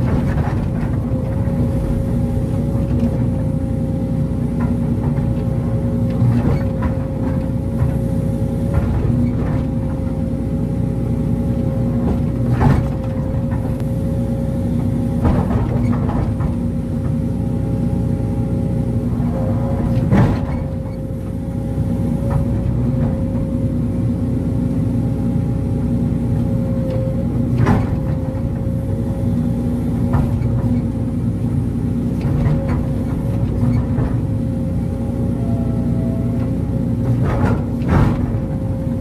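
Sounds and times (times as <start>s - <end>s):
excavator diesel engine running: 0.0s - 39.0s
hydraulic whine: 11.2s - 24.2s, 26.2s - 39.0s.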